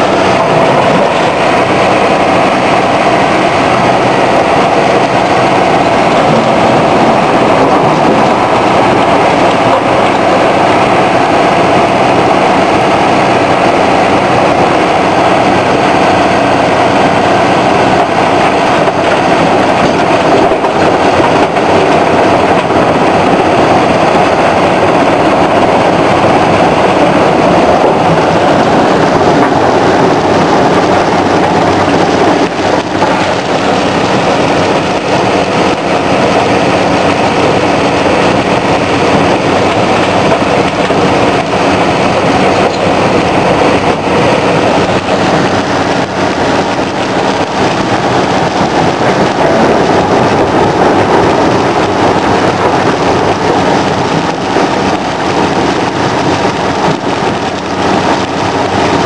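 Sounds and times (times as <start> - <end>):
rock crusher running: 0.0 - 12.3, 14.1 - 24.1
excavator diesel engine: 0.0 - 59.0.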